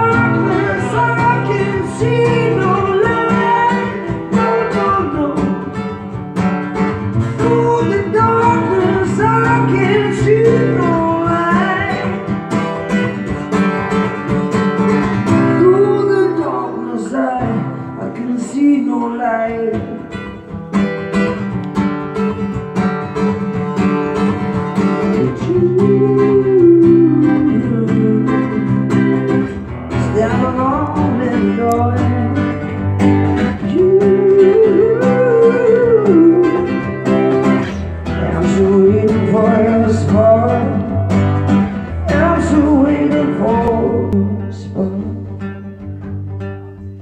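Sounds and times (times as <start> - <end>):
man singing: 0.0 - 6.1, 7.2 - 12.5, 15.3 - 20.4, 24.8 - 45.6
acoustic guitar strumming: 0.0 - 47.0.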